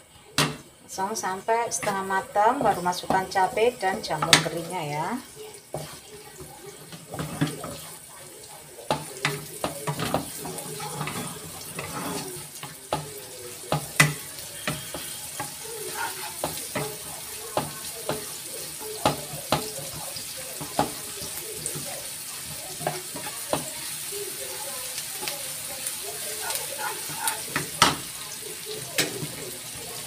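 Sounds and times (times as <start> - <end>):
shallots and garlic sizzling in oil: 0.0 - 30.0
wooden spatula tapping pan: 1.7 - 7.9, 8.9 - 23.8.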